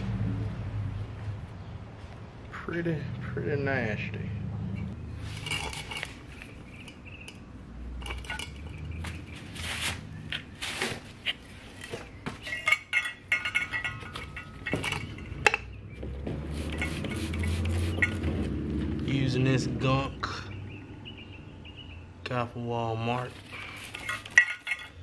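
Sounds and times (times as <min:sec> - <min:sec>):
metal clinking on concrete: 0:05.3 - 0:09.2, 0:11.2 - 0:15.8, 0:16.7 - 0:18.3, 0:23.5 - 0:25.0.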